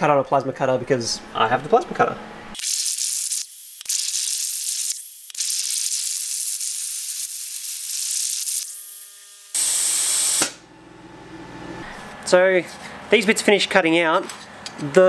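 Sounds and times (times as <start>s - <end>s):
plasma cutter arc hissing: 2.6s - 10.6s.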